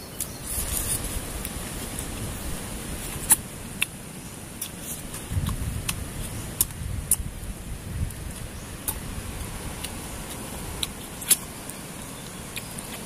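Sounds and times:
wind on microphone: 0.4s - 3.8s, 4.9s - 11.4s
chewing and picking at food: 2.9s - 7.5s, 8.1s - 13.0s.

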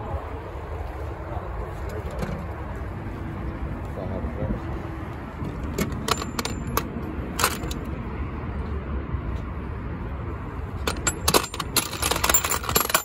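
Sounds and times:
steady low rumble: 0.0s - 12.0s
metal tools clinking: 5.7s - 7.9s, 10.8s - 13.0s.

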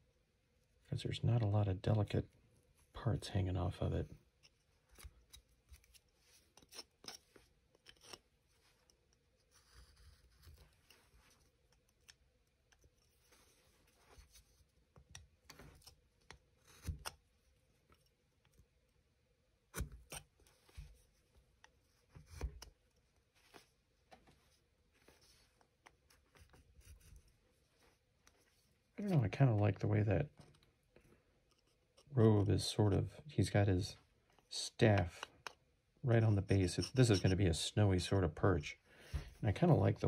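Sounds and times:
carving tool slicing wood: 15.4s - 17.2s, 19.7s - 20.9s, 22.1s - 22.7s.

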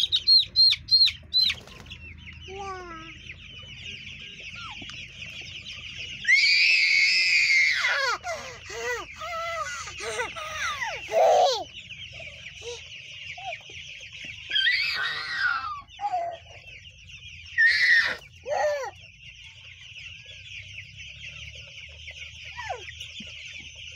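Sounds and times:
chicks peeping: 0.0s - 23.9s
toddler crying out: 17.6s - 19.0s.

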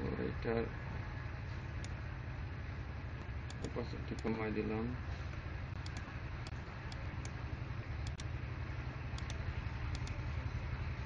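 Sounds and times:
low background hum: 0.0s - 11.0s
computer mouse clicking: 3.5s - 4.3s, 5.8s - 7.4s, 8.0s - 8.3s, 9.2s - 10.2s.

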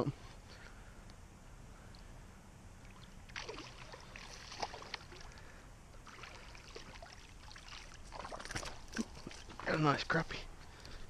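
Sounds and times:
water splashing: 2.8s - 10.0s.

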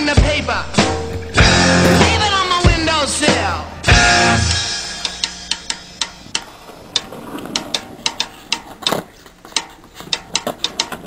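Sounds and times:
sharp clicks and clacks: 6.2s - 11.0s.

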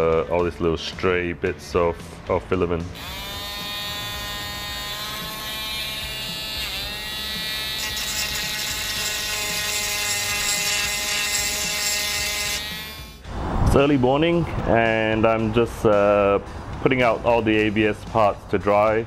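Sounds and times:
rotary tool whining: 3.0s - 13.2s.

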